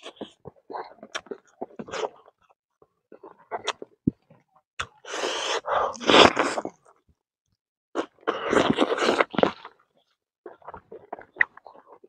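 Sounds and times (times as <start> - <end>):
chewing meat: 0.0 - 5.0, 8.0 - 12.0.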